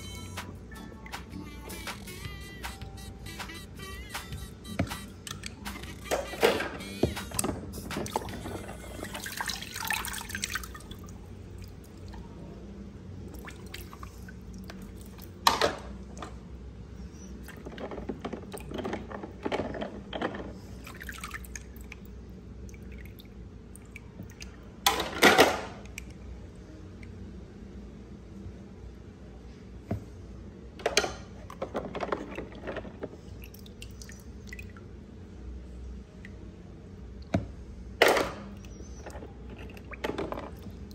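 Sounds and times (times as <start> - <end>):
water splashing in a plastic tub: 6.6 - 12.3, 13.2 - 16.4, 20.7 - 24.9, 31.4 - 34.9, 38.4 - 40.9.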